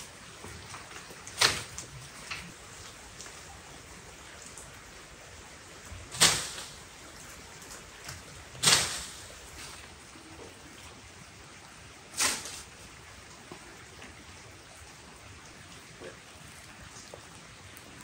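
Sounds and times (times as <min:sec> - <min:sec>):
light rain hiss: 0:00.0 - 0:18.0
pole knocking chestnuts from tree: 0:06.1 - 0:06.8, 0:08.6 - 0:09.2.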